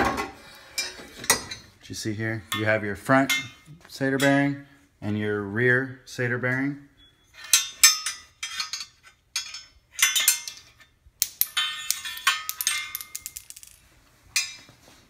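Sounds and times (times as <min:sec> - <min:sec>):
metal parts clinking: 0:07.4 - 0:13.8.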